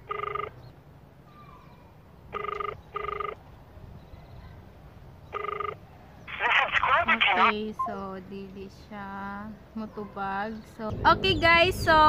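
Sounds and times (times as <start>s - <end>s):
phone ringback tone: 0.0s - 0.5s, 2.3s - 3.4s, 5.3s - 5.8s.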